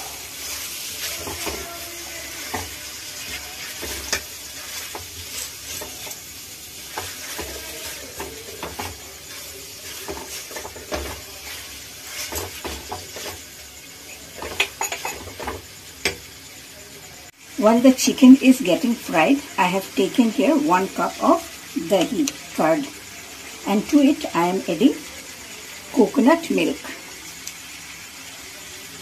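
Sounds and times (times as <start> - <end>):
metal spatula scraping a pan: 0.0 - 13.4
chicken sizzling in oil: 0.0 - 29.0.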